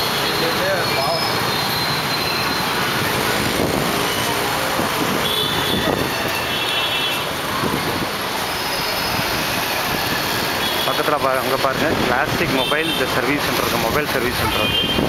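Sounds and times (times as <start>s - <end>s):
motorbikes and scooters passing: 0.0s - 14.4s
short high-pitched squeals: 0.2s - 3.0s.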